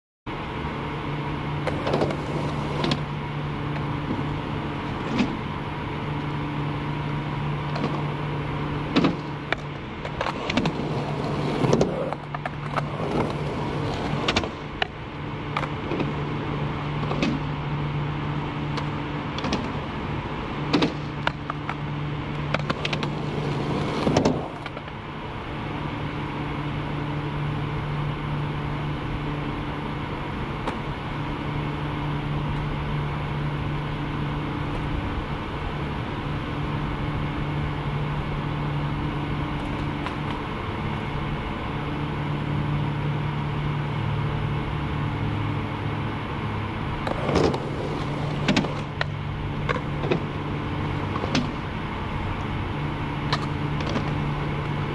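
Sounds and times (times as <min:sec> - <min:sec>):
low machine hum: 0:00.3 - 0:54.9
skateboard wheels rolling: 0:00.5 - 0:54.9
skateboard popping and landing clacks: 0:01.6 - 0:03.1, 0:07.6 - 0:08.2, 0:08.8 - 0:16.3, 0:18.7 - 0:19.9, 0:20.6 - 0:25.0, 0:47.0 - 0:51.7, 0:53.3 - 0:54.9
skateboard deck scraping: 0:01.6 - 0:06.4, 0:07.5 - 0:25.0, 0:47.0 - 0:52.4, 0:53.2 - 0:54.9.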